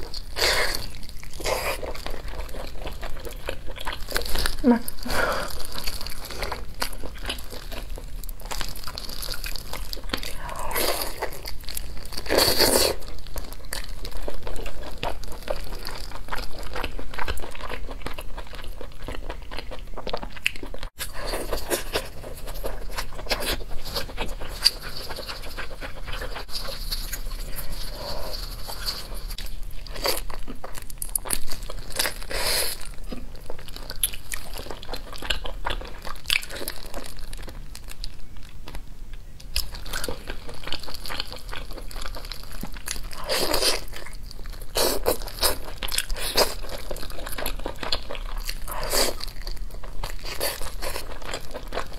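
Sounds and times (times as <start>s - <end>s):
chewing and biting: 0.0s - 38.2s.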